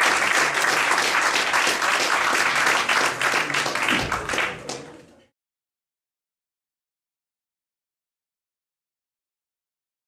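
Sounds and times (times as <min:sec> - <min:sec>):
audience applauding: 0:00.0 - 0:05.1.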